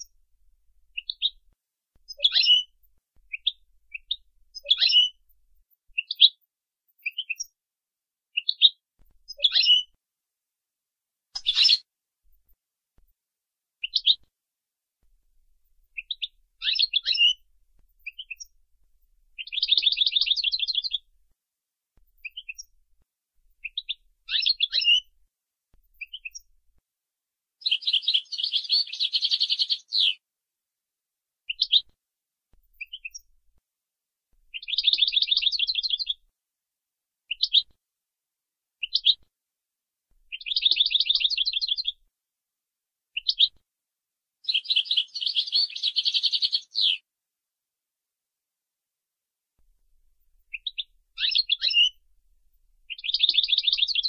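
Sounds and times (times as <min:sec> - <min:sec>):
finch singing trilled phrases: 0:02.1 - 0:02.7, 0:03.3 - 0:05.2, 0:08.4 - 0:09.9, 0:11.4 - 0:11.8, 0:16.0 - 0:17.4, 0:19.4 - 0:21.1, 0:23.6 - 0:25.1, 0:27.6 - 0:30.2, 0:34.6 - 0:36.2, 0:40.3 - 0:42.0, 0:44.5 - 0:47.0, 0:50.5 - 0:52.0, 0:52.9 - 0:54.0
bird twittering notes: 0:11.4 - 0:11.8.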